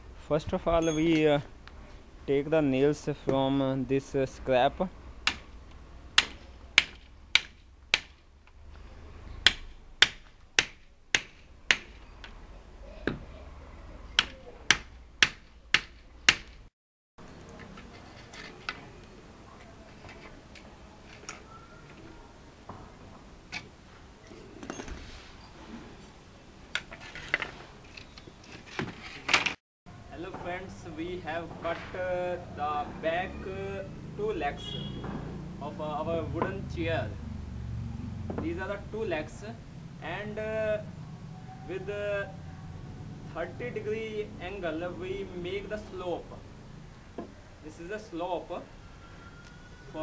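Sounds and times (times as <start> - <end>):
hammer striking nails in wood: 5.2 - 5.5, 6.2 - 8.2, 9.4 - 12.0, 14.2 - 16.6
wood strips moved: 17.4 - 22.0, 26.8 - 29.6.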